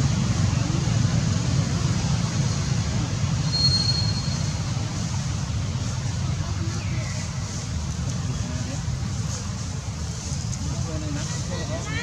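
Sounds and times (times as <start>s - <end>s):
high-pitched squeak: 3.5s - 4.5s.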